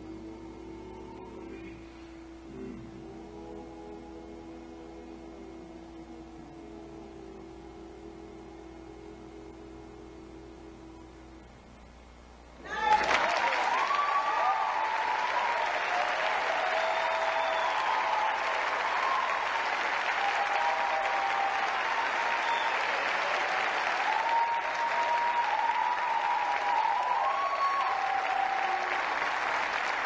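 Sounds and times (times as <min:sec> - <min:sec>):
drawn-out cheers: 0:12.6 - 0:30.0
audience applauding: 0:12.7 - 0:30.0.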